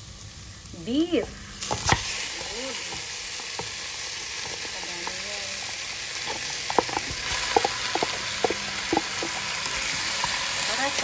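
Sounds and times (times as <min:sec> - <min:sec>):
oil sizzling in a pot: 0:00.0 - 0:11.0
wooden spoon knocking container: 0:06.2 - 0:09.5.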